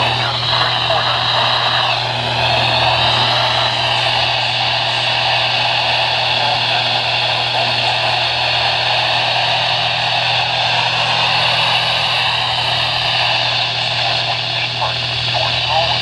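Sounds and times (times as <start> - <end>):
low hum: 0.0 - 16.0
radio static hiss: 0.0 - 16.0.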